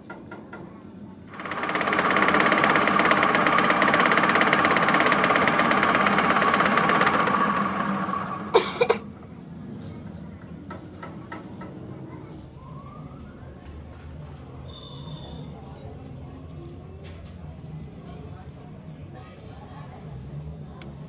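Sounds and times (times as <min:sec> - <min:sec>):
metal lathe running: 0:01.3 - 0:09.0.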